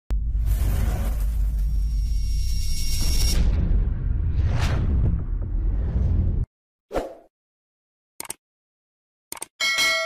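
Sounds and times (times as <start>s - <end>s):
deep rumble: 0.1s - 6.5s.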